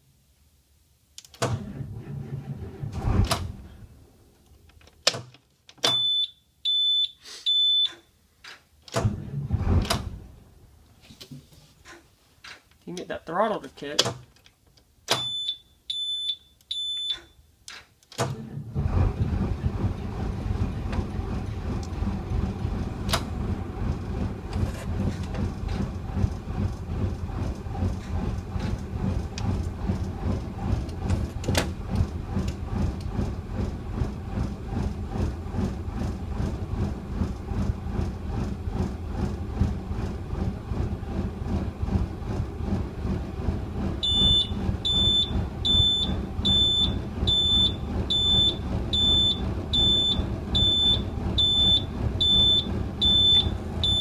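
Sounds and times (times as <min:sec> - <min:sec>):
diesel engine starting and idling: 0:01.4 - 0:04.6, 0:08.8 - 0:10.9, 0:18.2 - 0:54.0.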